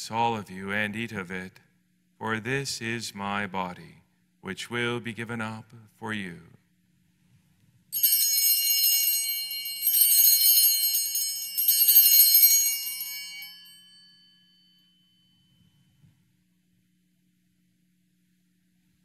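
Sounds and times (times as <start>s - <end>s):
small bells jangling: 8.0s - 15.8s.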